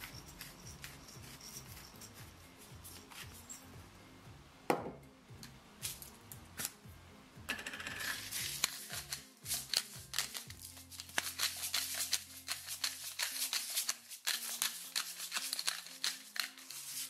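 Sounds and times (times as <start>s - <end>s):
background music: 0.0s - 17.0s
salt and pepper grinder clicking: 8.0s - 16.9s.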